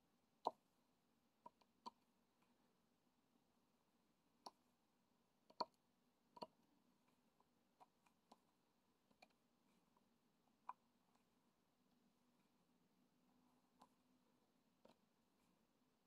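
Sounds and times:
faint small clicks and taps: 1.4 - 2.6, 4.4 - 4.7, 5.4 - 11.4, 13.3 - 14.1, 14.8 - 15.6.

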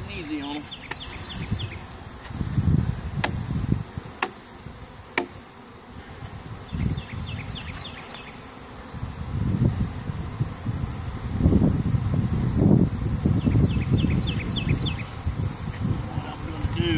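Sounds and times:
bee swarm buzzing: 0.0 - 16.9.

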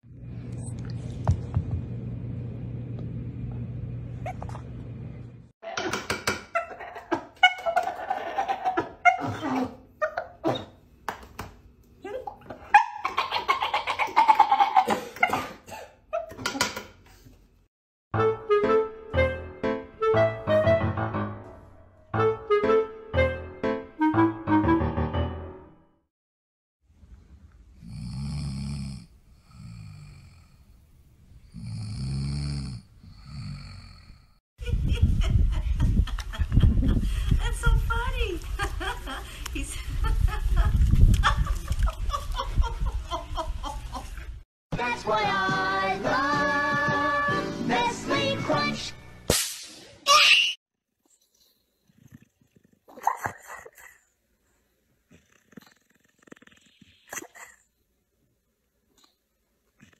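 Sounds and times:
dog snoring: 27.8 - 30.7, 31.4 - 34.3.

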